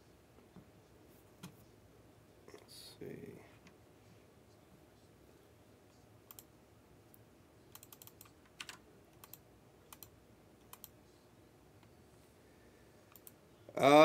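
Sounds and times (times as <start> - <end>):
typing on computer keyboard: 6.3 - 6.5, 7.7 - 10.1, 10.7 - 10.9, 13.1 - 13.4.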